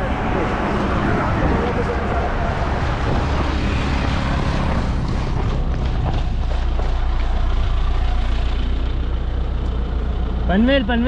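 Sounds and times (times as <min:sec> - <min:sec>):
rushing noise: 0:00.0 - 0:09.4
vehicle engine and road rumble: 0:00.0 - 0:11.0.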